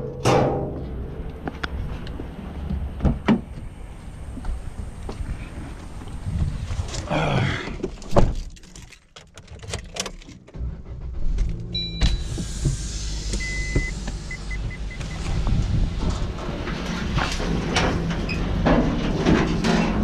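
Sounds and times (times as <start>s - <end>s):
car engine starting and idling: 8.4s - 19.1s
car door shutting: 11.4s - 15.6s.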